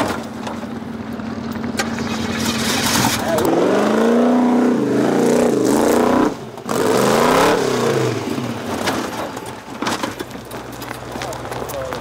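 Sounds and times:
car tumbling knocks and scrapes: 0.0s - 3.6s, 8.1s - 12.0s
buggy engine revving: 0.0s - 12.0s.

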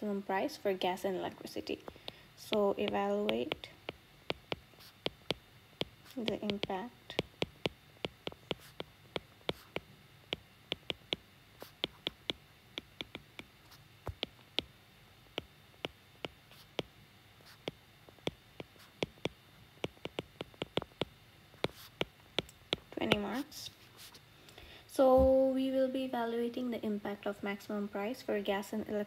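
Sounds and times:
stylus tapping on glass screen: 2.0s - 14.7s, 17.6s - 23.3s.

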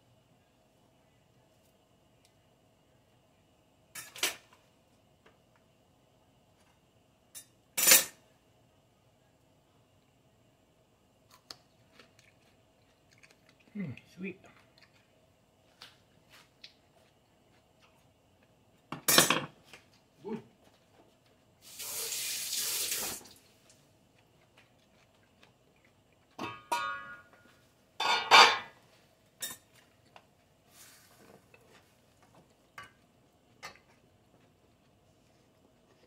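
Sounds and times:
metal pot and lid clattering: 26.4s - 27.3s, 28.0s - 28.8s.

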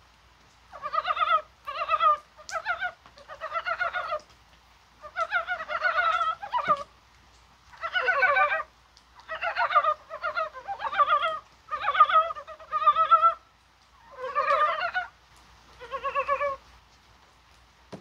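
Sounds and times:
frogs calling in chorus: 0.7s - 4.2s, 5.0s - 6.9s, 7.7s - 13.4s, 14.0s - 15.1s.

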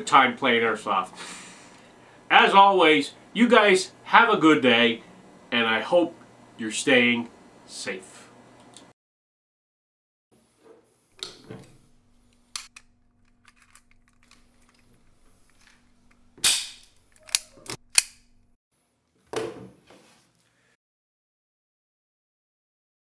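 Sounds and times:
airsoft pistol shots: 16.4s - 16.8s.

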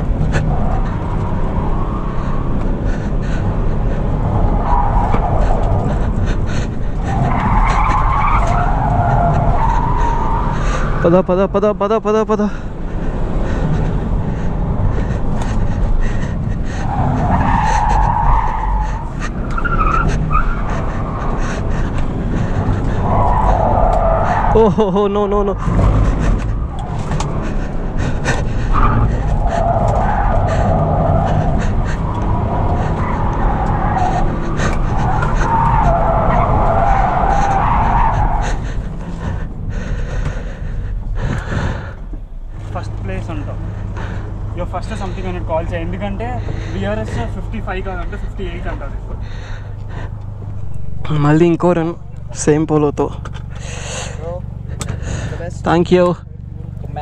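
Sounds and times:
tyres squealing: 0.0s - 11.5s, 12.4s - 41.9s
car engine running: 0.0s - 57.0s
road noise: 0.0s - 57.0s.

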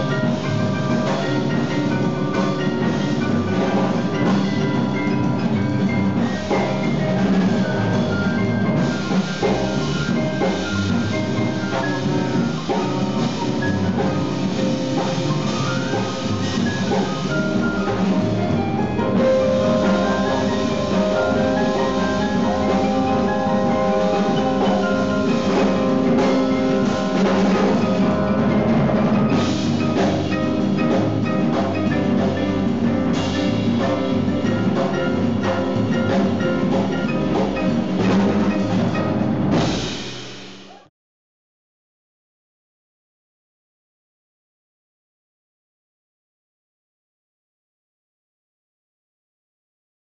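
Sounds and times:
upright double bass: 0.0s - 39.9s
drums and cymbals: 0.0s - 40.9s
jazz piano: 0.0s - 40.9s.

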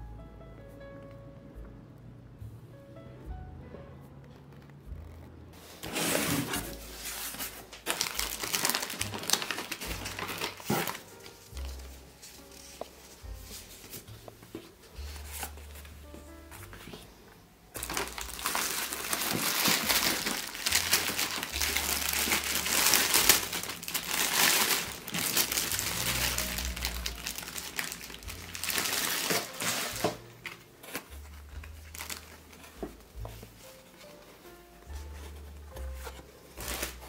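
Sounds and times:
plastic bag crinkling: 6.0s - 12.7s, 17.8s - 32.7s.

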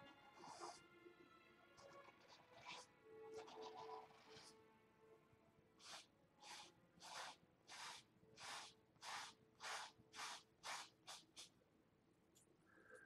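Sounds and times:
paintbrush scrubbing on canvas: 5.8s - 11.5s.

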